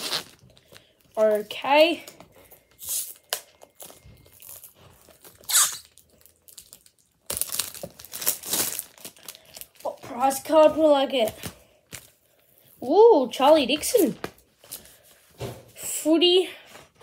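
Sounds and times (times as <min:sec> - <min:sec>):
wrapper crinkling and tearing: 0:00.0 - 0:10.5, 0:11.1 - 0:15.0.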